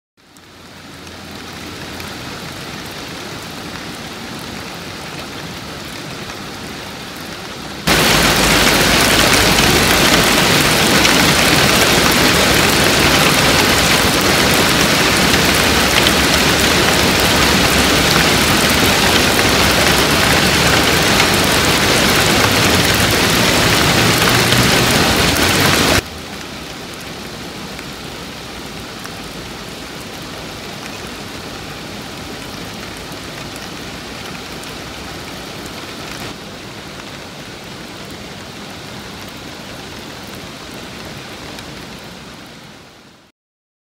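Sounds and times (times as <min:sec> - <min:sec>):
heavy downpour: 0:00.2 - 0:43.3
steady rain falling: 0:00.2 - 0:43.3.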